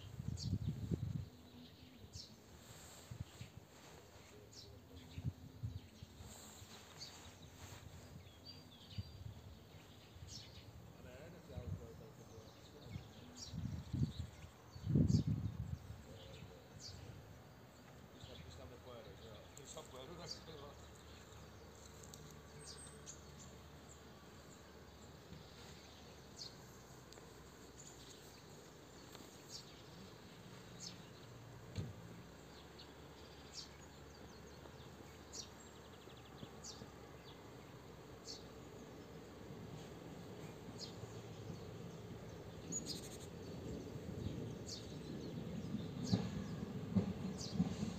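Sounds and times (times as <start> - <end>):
wind rumbling on microphone: 0.0 - 4.0, 4.6 - 10.7, 11.5 - 17.3.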